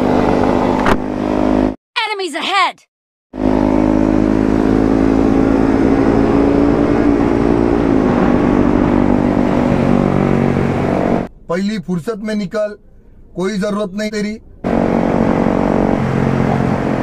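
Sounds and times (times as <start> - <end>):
motorcycle engine cruising: 0.0 - 1.8, 3.4 - 11.3
wind and road rush: 0.0 - 1.8, 3.4 - 11.5, 14.4 - 17.0.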